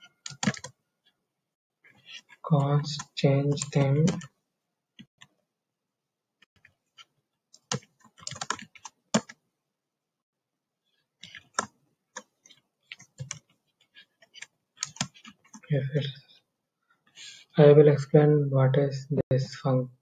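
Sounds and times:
typing on computer keyboard: 0.2 - 0.8, 3.0 - 4.3, 7.6 - 9.4, 11.2 - 12.3, 12.9 - 13.5, 14.2 - 15.6.

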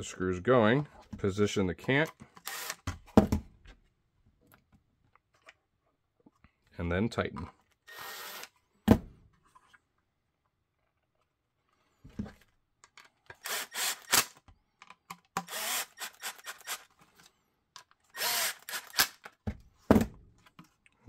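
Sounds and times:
impact driver bursts: 2.4 - 2.9, 13.4 - 14.4, 15.4 - 16.9, 18.1 - 19.2.

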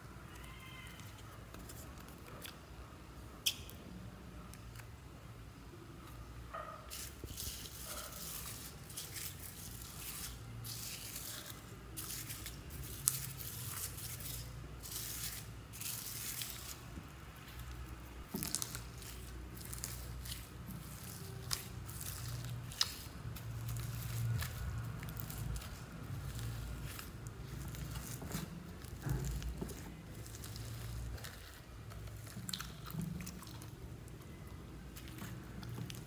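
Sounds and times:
foam beads crunching in slime: 18.3 - 32.8.

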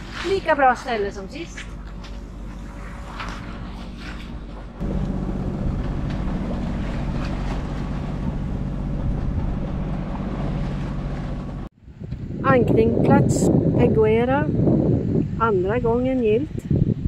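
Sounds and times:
water rushing along hull: 0.0 - 11.8
boat engine droning: 0.0 - 13.0
wind: 0.0 - 17.0.

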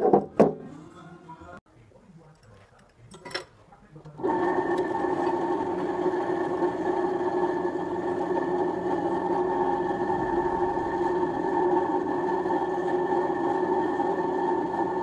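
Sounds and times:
drill press motor humming: 4.2 - 15.0.

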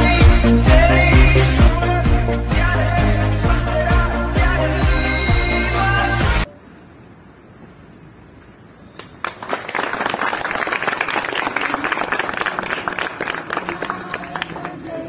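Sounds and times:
crowd clapping: 9.0 - 15.0.

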